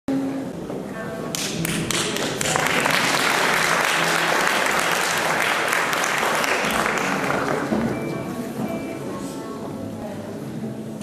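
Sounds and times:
audience applause: 0:01.4 - 0:08.0.

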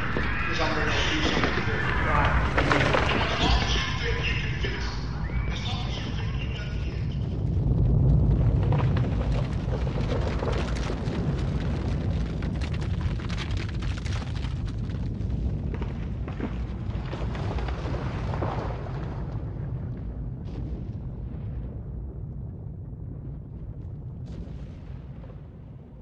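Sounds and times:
crackles and pops: 0:00.0 - 0:26.0
deep rumbling: 0:00.0 - 0:26.0.

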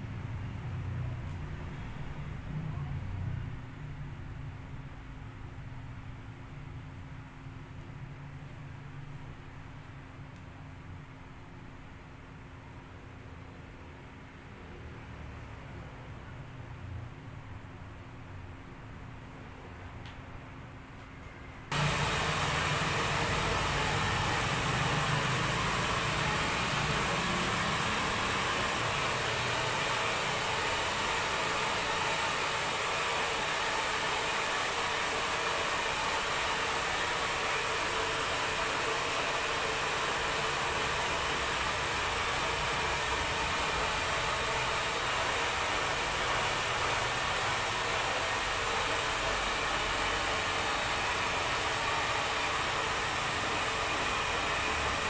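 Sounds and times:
hair dryer blowing: 0:21.7 - 0:55.0.

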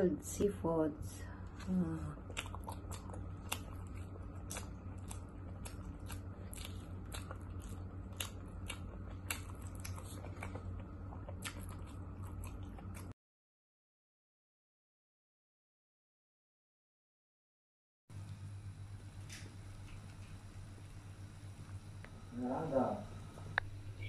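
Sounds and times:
steady low hum: 0:00.0 - 0:13.2, 0:18.1 - 0:24.0.

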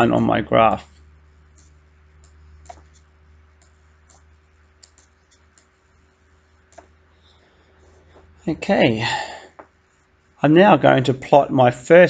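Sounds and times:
low electrical hum: 0:00.0 - 0:12.0
digital pen tapping on screen: 0:01.5 - 0:03.0, 0:03.6 - 0:05.8.

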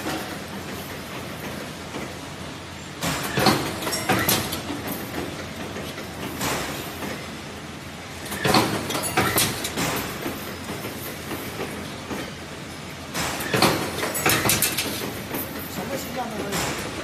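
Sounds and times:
spring making machine running: 0:00.0 - 0:17.0.

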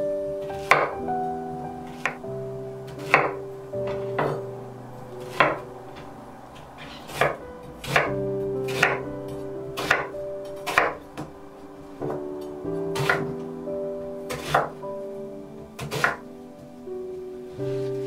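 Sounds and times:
soft background music: 0:00.0 - 0:18.0
knife chopping on wooden board: 0:07.1 - 0:09.0, 0:09.8 - 0:11.0, 0:13.0 - 0:13.3, 0:14.3 - 0:14.8, 0:15.8 - 0:16.2.

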